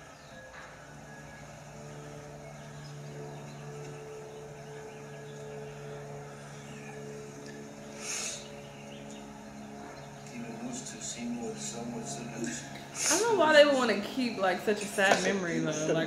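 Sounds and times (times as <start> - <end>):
soft sustained background music: 0.0 - 16.0.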